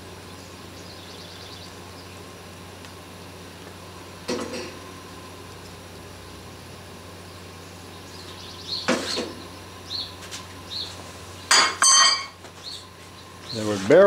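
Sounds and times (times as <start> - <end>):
steady low hum: 0.0 - 14.0
loud ringing metal clanks: 11.5 - 12.4.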